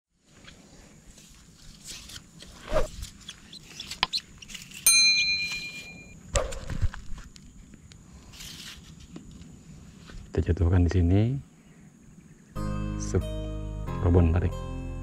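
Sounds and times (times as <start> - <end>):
bright bell-like ding: 4.9 - 6.1.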